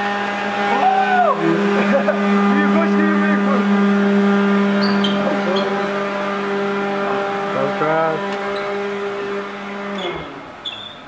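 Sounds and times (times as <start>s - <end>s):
electric leaf blowers running: 0.0s - 10.6s
voices and laughter: 1.4s - 3.1s.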